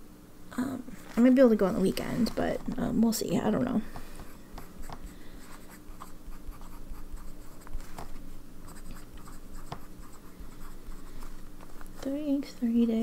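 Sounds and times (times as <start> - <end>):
fountain pen scratching paper: 8.7 - 11.3.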